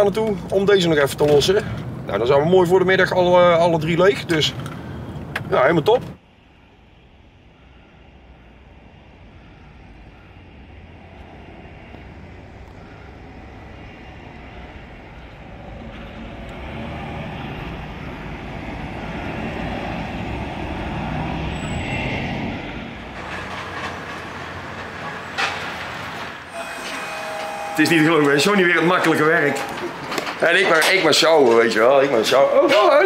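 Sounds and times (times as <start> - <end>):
truck diesel engine: 7.4 - 30.4.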